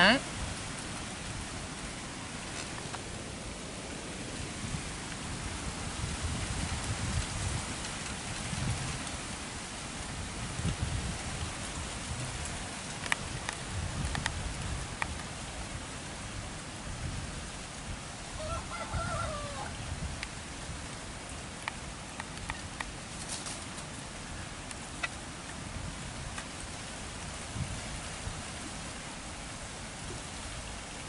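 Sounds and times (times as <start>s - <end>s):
steady hiss: 0.0s - 18.7s
rooster crowing: 18.4s - 19.8s.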